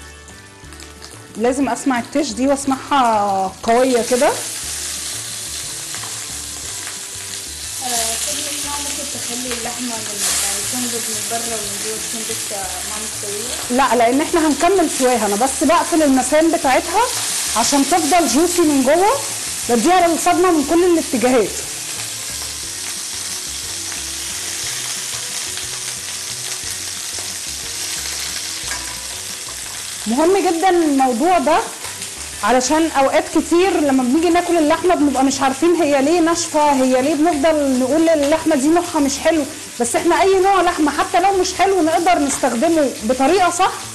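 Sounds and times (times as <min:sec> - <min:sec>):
background music with beat: 0:00.0 - 0:01.4
meat sizzling in hot oil: 0:00.0 - 0:43.9
metal tongs turning meat: 0:08.0 - 0:19.3, 0:24.5 - 0:30.6.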